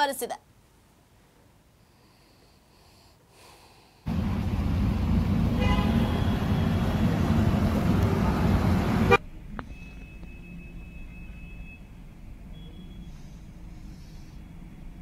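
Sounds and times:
loud traffic noise: 4.1 - 9.2
car horn toot: 5.5 - 9.2.

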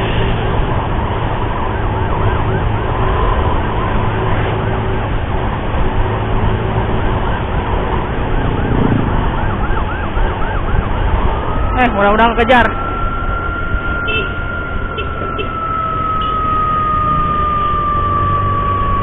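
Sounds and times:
motorcycle engine: 0.0 - 11.8
wind rumble: 0.0 - 19.0
ambulance siren yelping: 0.8 - 4.0, 6.8 - 19.0.

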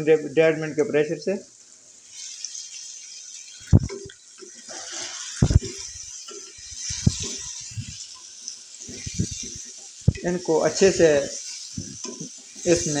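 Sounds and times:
light sizzling: 0.0 - 13.0
wooden spatula scraping a wok: 2.0 - 13.0.

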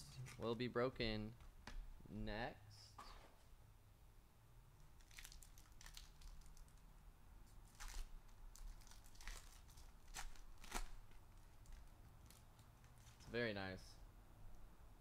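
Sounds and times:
foil wrapper tearing: 5.0 - 6.8, 7.6 - 13.3.

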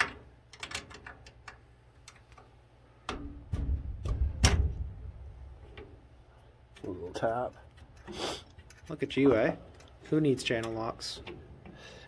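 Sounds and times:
low rumble: 3.4 - 5.8.

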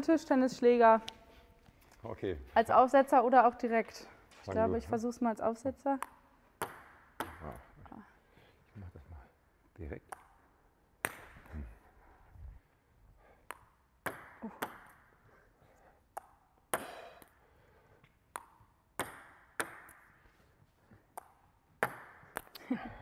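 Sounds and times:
table tennis ball ticks: 6.0 - 7.4, 13.4 - 15.0, 18.0 - 20.1.

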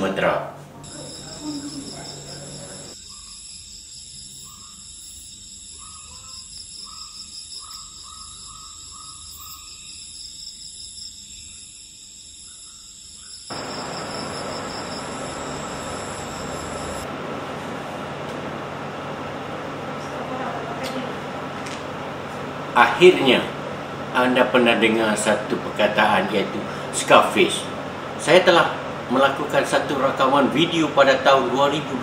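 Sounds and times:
short repeated insect calls: 0.8 - 17.0
insect chorus trilling: 0.8 - 17.1
air conditioner hiss: 13.5 - 32.0.

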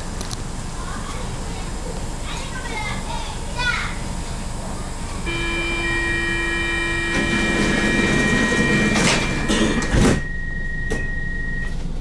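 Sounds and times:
electronic door tone: 5.3 - 11.8
doors shutting with thud: 7.1 - 10.3.

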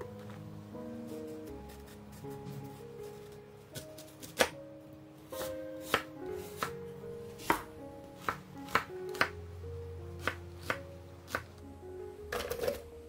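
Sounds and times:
soft background music: 0.0 - 13.0
knife chopping on wooden board: 4.0 - 4.6, 5.4 - 6.7, 7.4 - 9.3.

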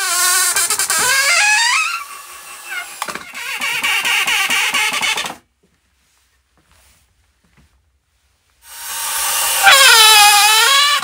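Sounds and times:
cordless drill driving screw: 0.0 - 5.4, 8.6 - 11.0.

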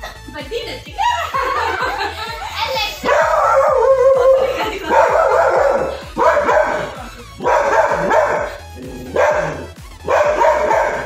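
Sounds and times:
music playing: 0.0 - 11.0
dog barking: 3.0 - 11.0.

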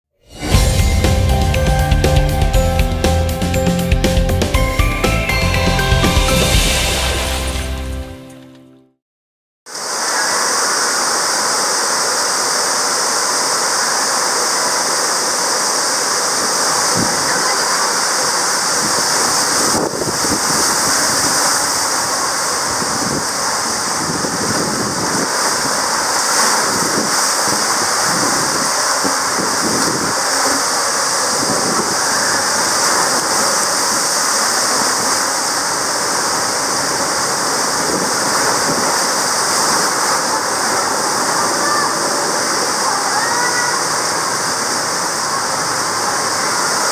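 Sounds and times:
water rushing down water slide: 9.7 - 46.9.

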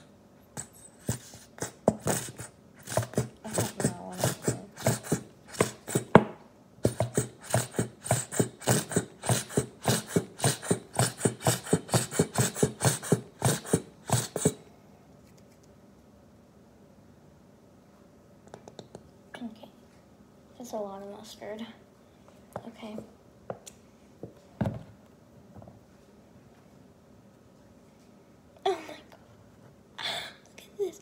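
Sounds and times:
squeeze bottle sputtering: 0.6 - 6.2, 6.8 - 14.6.

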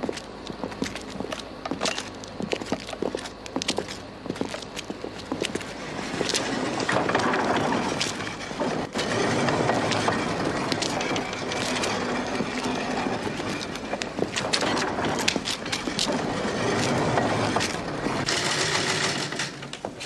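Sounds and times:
mine carts rattling on rails: 5.1 - 20.0.

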